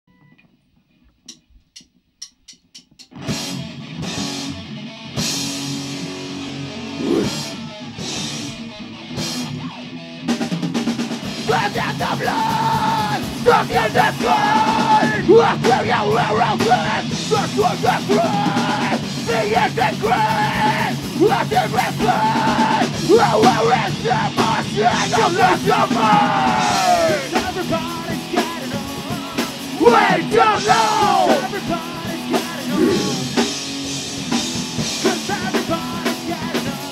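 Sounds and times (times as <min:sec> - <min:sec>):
rock band playing: 0:03.0 - 0:36.9
person singing: 0:11.4 - 0:33.6, 0:35.0 - 0:36.9.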